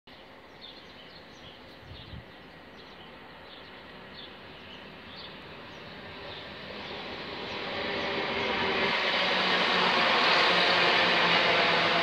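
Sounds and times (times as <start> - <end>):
small birds chirping: 0.1 - 8.2
steady outdoor hiss: 0.1 - 12.0
distant train rumble: 0.2 - 12.0.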